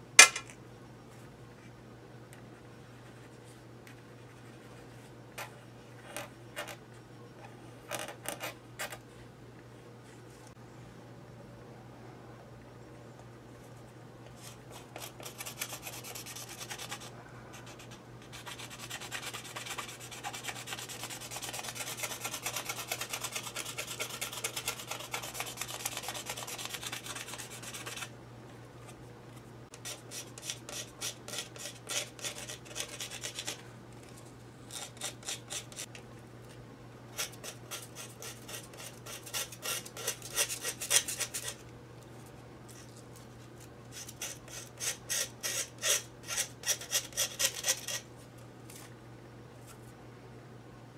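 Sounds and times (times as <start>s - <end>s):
knife scraping quill: 14.4s - 28.1s, 29.7s - 33.6s, 34.7s - 36.0s, 37.1s - 41.6s, 43.9s - 48.1s.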